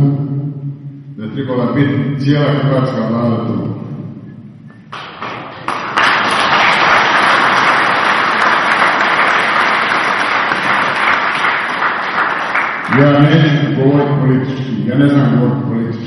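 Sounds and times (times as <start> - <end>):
audience applauding: 4.9 - 13.3.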